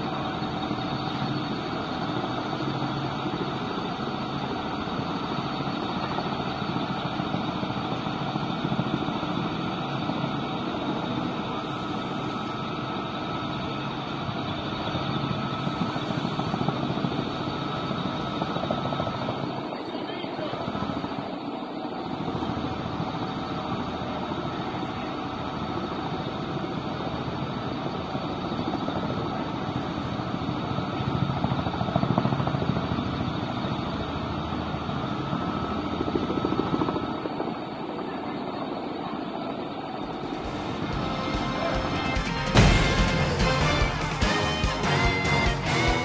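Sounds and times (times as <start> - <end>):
constant high whine: 0.0 - 46.0
helicopter engine noise: 0.0 - 46.0
helicopter rotor beat: 0.0 - 46.0
heavy engine pulsing: 39.4 - 46.0.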